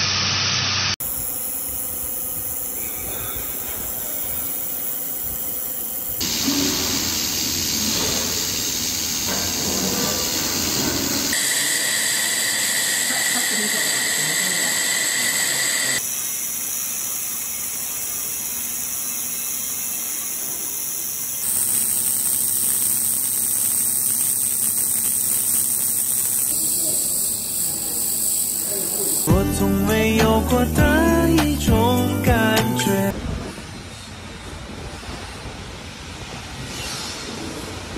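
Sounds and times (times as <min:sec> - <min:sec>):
laser welding hiss: 0:00.0 - 0:29.3
steady high whine: 0:00.0 - 0:36.4.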